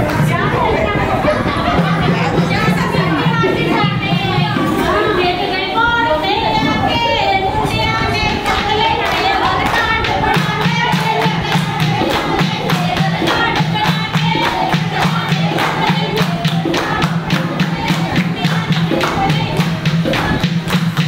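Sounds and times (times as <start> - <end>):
women singing: 0.0 - 21.0
women clapping: 8.4 - 21.0.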